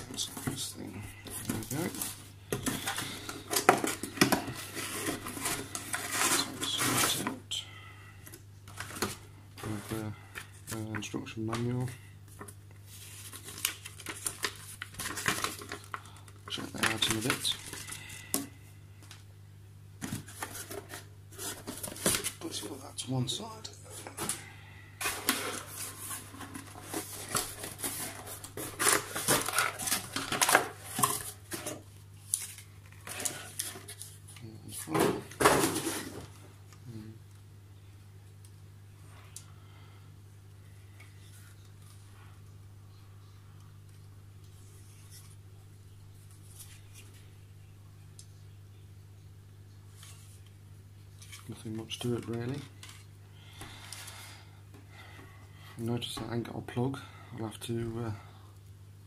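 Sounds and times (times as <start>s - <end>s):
cardboard rustling and scraping: 0.0s - 7.4s, 8.7s - 11.7s, 12.3s - 15.9s, 20.0s - 22.8s, 25.0s - 36.4s.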